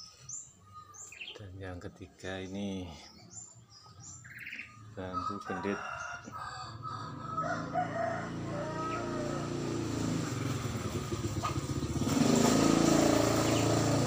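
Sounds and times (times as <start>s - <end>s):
vehicle engine running: 7.5s - 14.0s.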